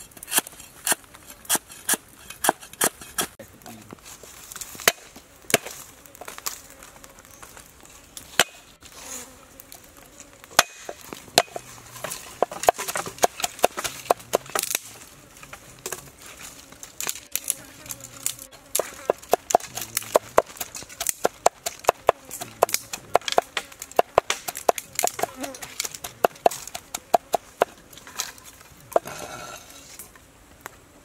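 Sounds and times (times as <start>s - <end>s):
faint insect buzz: 3.6s - 31.0s
cleaver chopping on wooden board: 10.6s - 11.6s, 12.4s - 14.8s, 18.8s - 27.7s.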